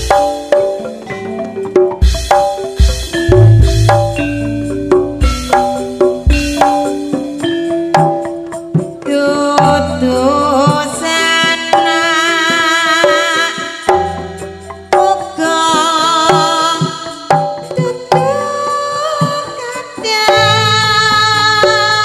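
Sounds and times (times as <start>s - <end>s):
wavering melody notes: 0.0s - 11.2s
hand drums beating: 0.0s - 22.0s
deep bass line: 3.3s - 5.6s.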